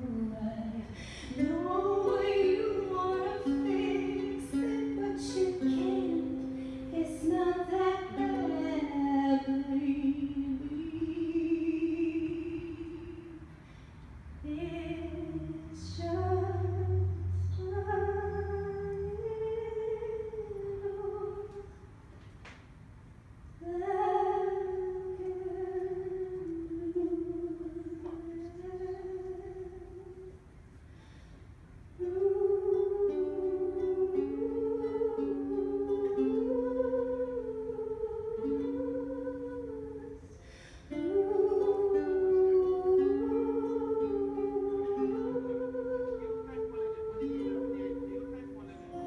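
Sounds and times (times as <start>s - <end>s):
woman singing a long note: 0.0s - 13.4s, 32.0s - 49.0s
wordless vocal melody: 0.0s - 13.4s, 32.0s - 49.0s
acoustic guitar: 0.0s - 22.6s, 23.6s - 49.0s.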